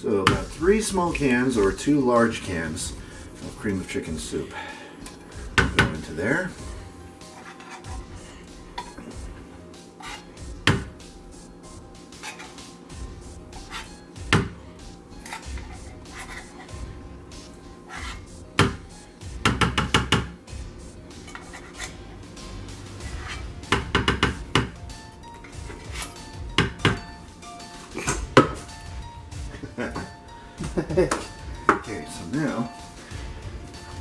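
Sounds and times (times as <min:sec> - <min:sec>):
spatula scraping inside metal cans: 0:07.2 - 0:09.2, 0:09.8 - 0:10.5, 0:12.1 - 0:12.7, 0:13.5 - 0:14.0, 0:15.1 - 0:16.9, 0:17.9 - 0:18.4, 0:21.1 - 0:22.1, 0:22.8 - 0:23.7, 0:24.9 - 0:28.8.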